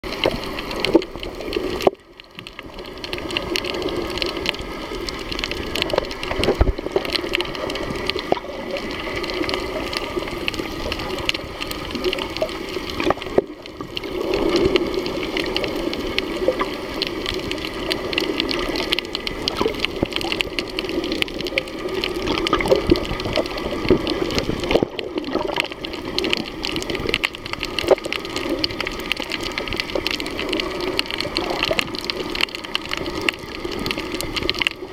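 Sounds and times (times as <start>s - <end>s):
muffled underwater rush: 0.0s - 34.9s
underwater clicks and crackles: 0.0s - 34.9s.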